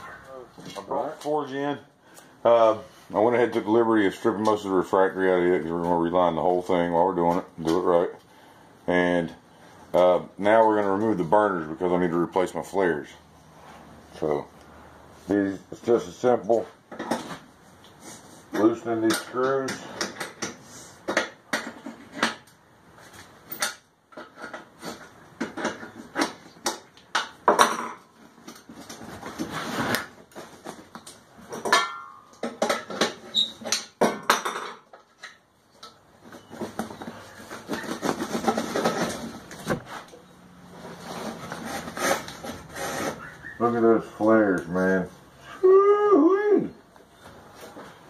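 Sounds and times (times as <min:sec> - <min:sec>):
rustling: 0:28.2 - 0:31.6, 0:36.2 - 0:43.8
brief squeak: 0:43.1 - 0:43.6.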